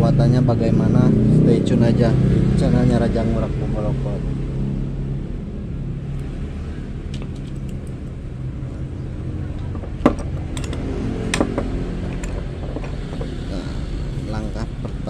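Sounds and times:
steady low rumble: 0:00.0 - 0:15.0
hand tools knocking on wood: 0:09.6 - 0:13.5.

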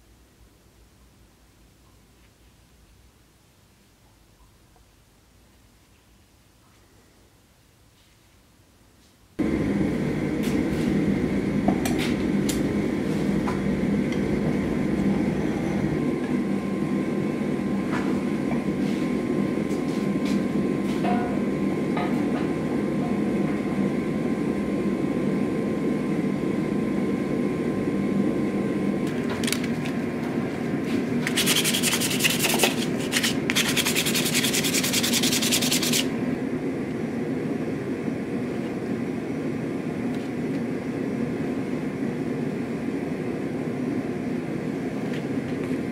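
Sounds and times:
gas forge blower rushing and humming: 0:09.4 - 0:45.9.

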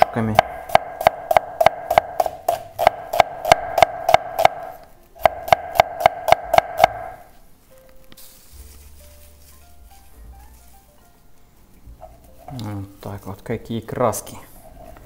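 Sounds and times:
knife chopping on wooden board: 0:00.0 - 0:07.2
soft background music: 0:00.0 - 0:15.0.

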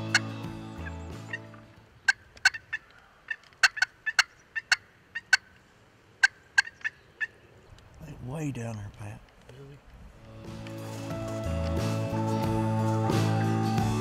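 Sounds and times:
background music: 0:00.0 - 0:01.9, 0:10.3 - 0:14.0
turkey calls: 0:00.0 - 0:07.6.

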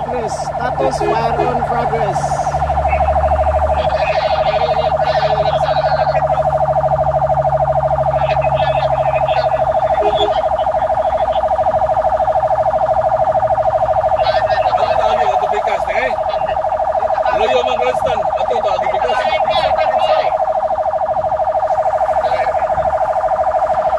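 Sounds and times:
fire truck siren warbling: 0:00.0 - 0:23.9
low engine hum: 0:00.0 - 0:23.9.

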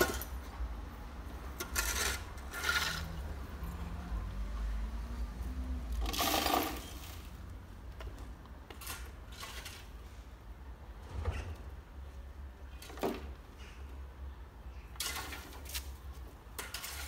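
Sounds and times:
garden tool scraping gravelly ground: 0:01.6 - 0:03.3, 0:08.7 - 0:10.3, 0:16.6 - 0:17.0.

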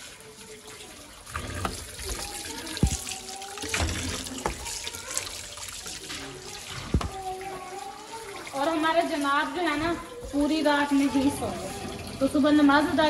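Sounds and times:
tap water running into sink: 0:00.0 - 0:13.0
potatoes knocking on sink: 0:06.8 - 0:07.2.

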